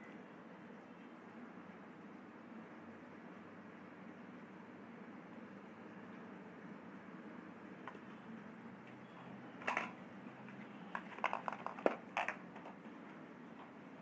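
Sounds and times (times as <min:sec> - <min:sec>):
makeup items clicking: 0:10.9 - 0:12.8.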